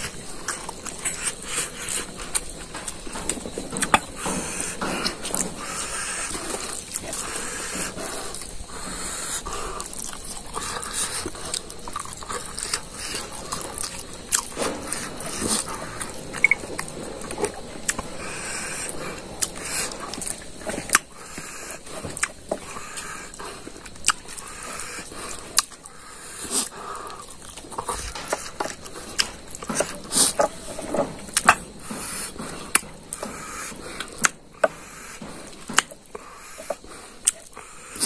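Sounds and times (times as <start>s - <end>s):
wet chewing and lip-smacking: 0.0s - 38.0s.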